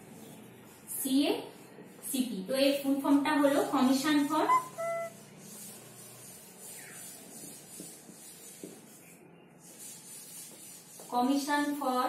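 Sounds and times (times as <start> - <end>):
marker rubbing on whiteboard: 3.4 - 11.9
marker squeak: 4.2 - 5.3.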